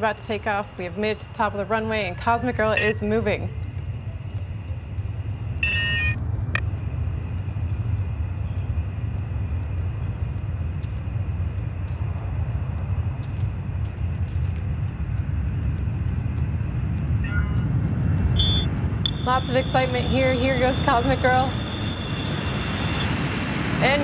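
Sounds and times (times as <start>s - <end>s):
jet engines rumbling at takeoff: 0.0s - 24.0s
brief high-pitched tone: 2.8s - 3.0s, 5.6s - 6.2s.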